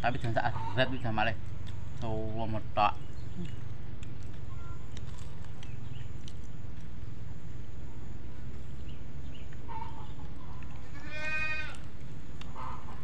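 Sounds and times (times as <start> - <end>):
steady low rumble: 0.0 - 13.0
goat bleating: 10.8 - 11.8.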